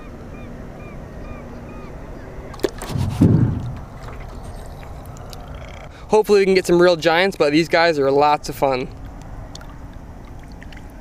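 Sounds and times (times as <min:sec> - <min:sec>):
water sloshing and splashing: 0:02.5 - 0:06.0, 0:08.8 - 0:11.0
fish thrashing in water: 0:02.6 - 0:05.9, 0:09.5 - 0:11.0.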